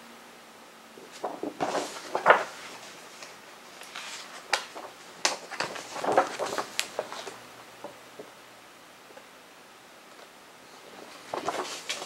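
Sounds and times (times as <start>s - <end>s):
paper pages rustling: 1.0s - 8.0s, 10.8s - 12.0s.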